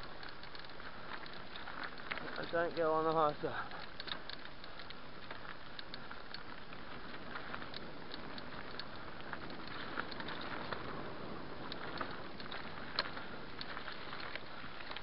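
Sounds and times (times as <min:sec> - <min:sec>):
tyres clicking on loose stones: 0:00.0 - 0:11.0
bike rolling rushing noise: 0:00.0 - 0:15.0.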